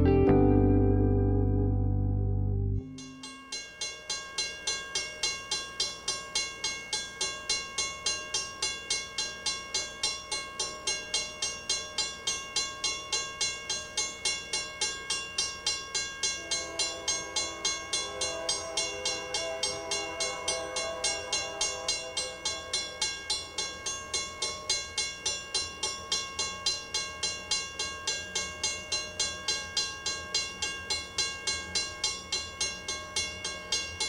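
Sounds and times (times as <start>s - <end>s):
crossing bell ringing: 2.8s - 34.0s
low steady horn tone: 16.2s - 23.8s.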